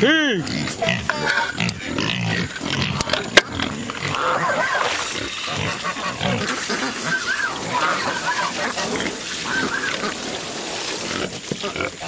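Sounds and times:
hogs grunting: 0:00.4 - 0:12.0
hogs high-pitched calls: 0:04.0 - 0:12.0.

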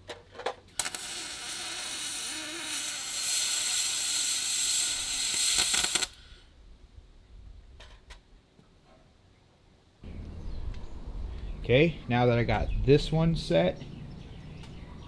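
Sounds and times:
welding arc crackling hiss: 0:00.7 - 0:06.5
arc striking clicks: 0:05.2 - 0:06.2.

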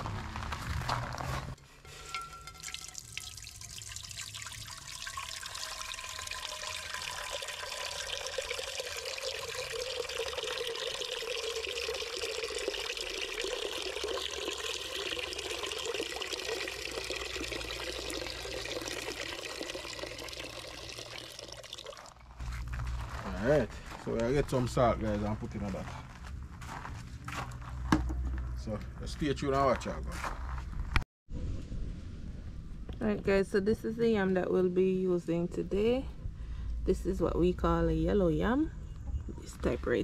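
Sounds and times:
water pouring into pot: 0:02.0 - 0:22.3.

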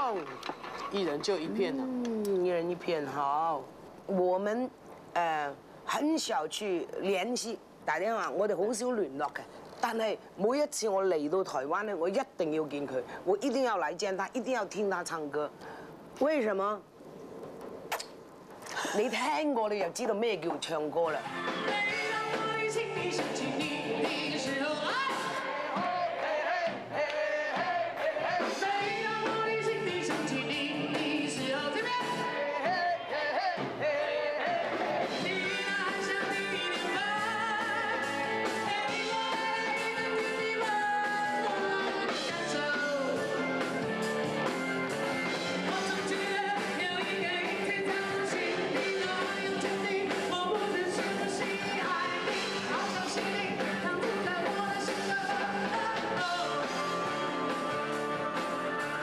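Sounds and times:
woman singing into a microphone: 0:21.4 - 0:25.7, 0:28.4 - 0:34.2, 0:35.1 - 0:43.4, 0:45.7 - 0:59.0
live band with guitars and drums: 0:34.6 - 0:59.0.

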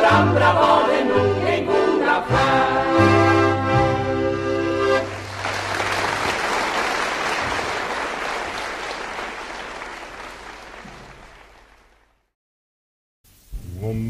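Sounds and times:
audience applause: 0:05.0 - 0:12.2.

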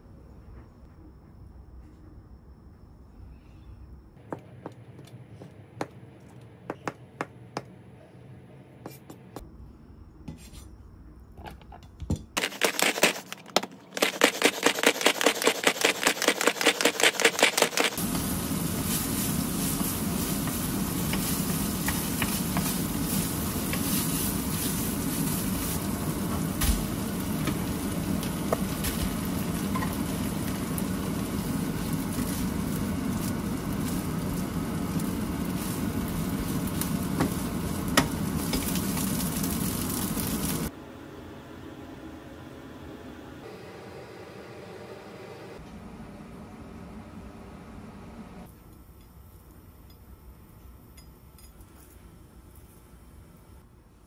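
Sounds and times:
wooden spoon scraping and tapping: 0:12.4 - 0:18.0, 0:19.8 - 0:24.0
food sizzling in a pan: 0:14.4 - 0:40.7.

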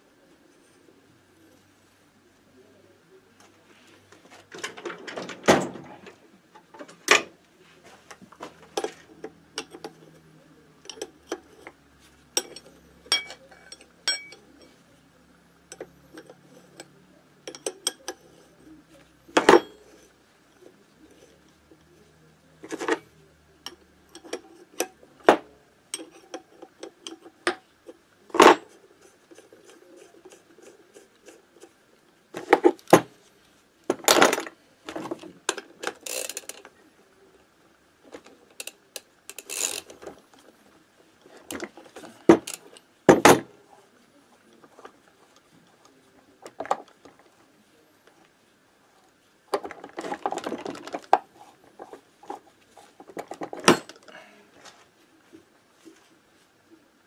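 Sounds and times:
metallic clicks and clinks: 0:12.4 - 0:14.7, 0:38.6 - 0:40.0.

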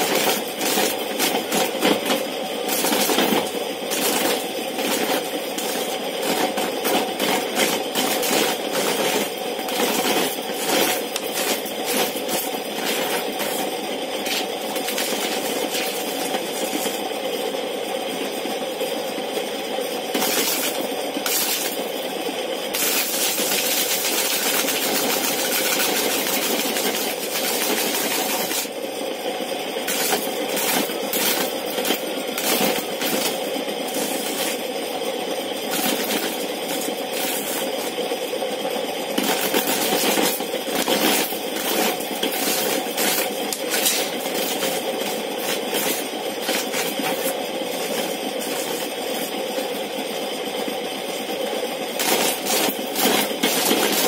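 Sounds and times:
spinning disc humming: 0:00.0 - 0:50.4
corn kernels clattering: 0:22.7 - 0:28.7, 0:39.2 - 0:48.9, 0:52.0 - 0:54.0.

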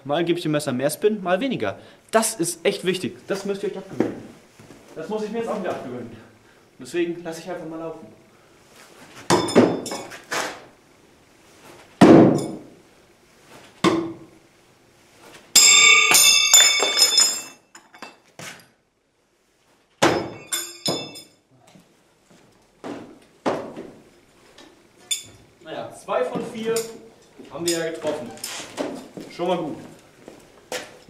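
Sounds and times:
knife clattering on floor: 0:15.6 - 0:18.2, 0:20.0 - 0:21.4, 0:25.1 - 0:25.4
knives thudding into wooden target: 0:20.0 - 0:21.2.

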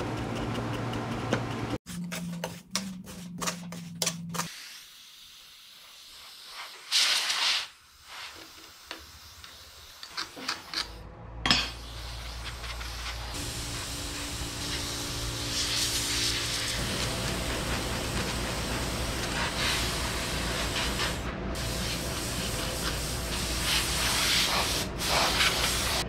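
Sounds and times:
compressed air blow gun hissing: 0:04.5 - 0:10.6, 0:11.8 - 0:26.0.

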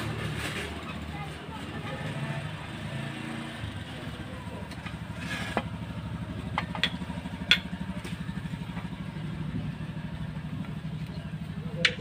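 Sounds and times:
engine idling: 0:03.7 - 0:12.0.

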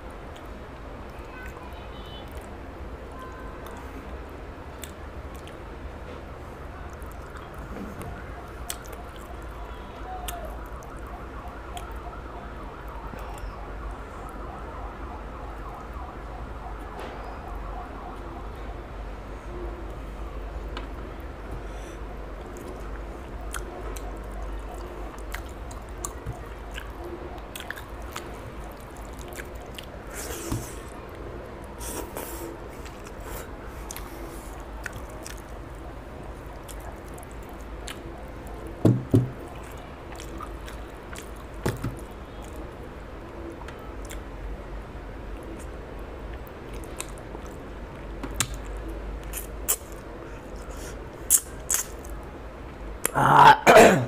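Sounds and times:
wet squishing and chewing: 0:03.6 - 0:05.7, 0:06.6 - 0:14.8, 0:22.2 - 0:44.3, 0:45.3 - 0:52.3
mouth and finger clicks: 0:48.3 - 0:50.0, 0:51.3 - 0:52.2.

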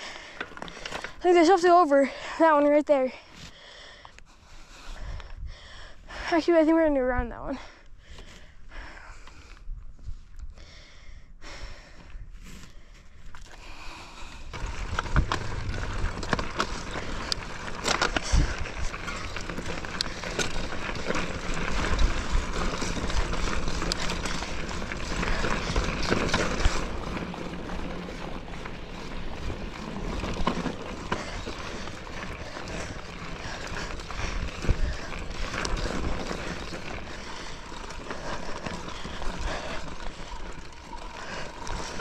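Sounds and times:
bike rattling and clicking: 0:00.0 - 0:02.8, 0:12.5 - 0:42.0
tyres crunching over gravel: 0:14.5 - 0:42.0.

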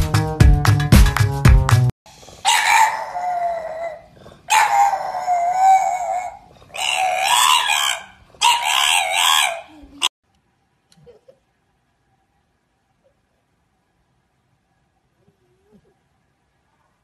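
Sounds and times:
dog howling: 0:02.4 - 0:10.1.

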